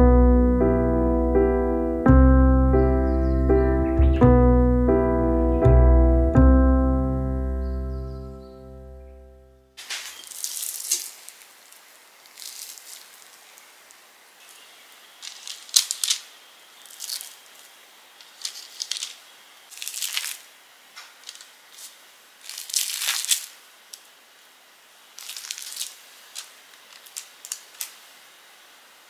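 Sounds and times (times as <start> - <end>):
plastic bag and paper crinkling: 9.8 - 24.2, 25.1 - 28.2.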